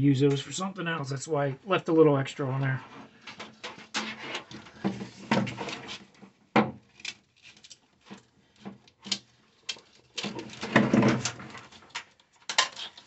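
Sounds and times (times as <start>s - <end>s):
wiring rubbing and scraping: 2.6s - 6.2s.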